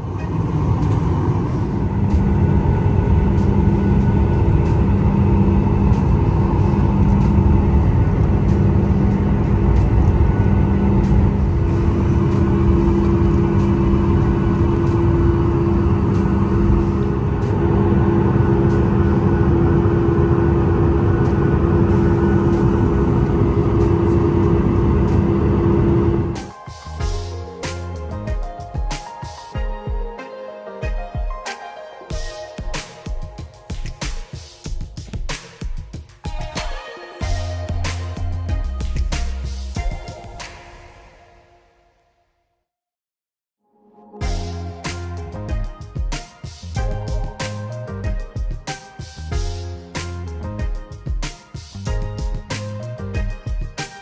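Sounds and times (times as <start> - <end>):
airliner engines droning in cabin: 0.0 - 26.4.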